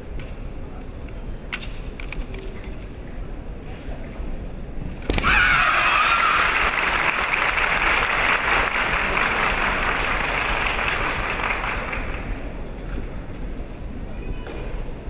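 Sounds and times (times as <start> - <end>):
crowd applauding: 5.6 - 12.5.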